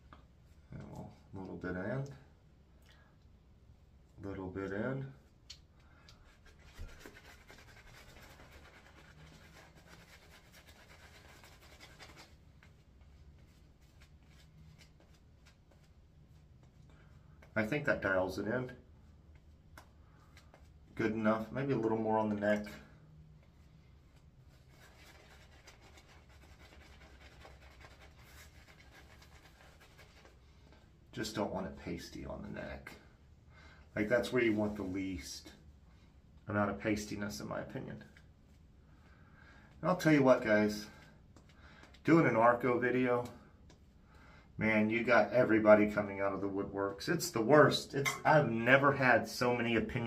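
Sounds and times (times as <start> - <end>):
shaving brush scratching: 6.3 - 12.7, 24.5 - 30.4.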